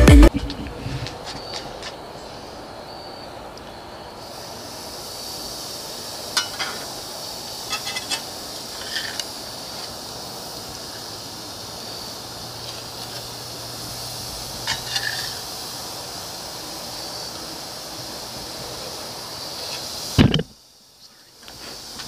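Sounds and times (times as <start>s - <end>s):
burger patties sizzling on grill: 3.7s - 20.8s.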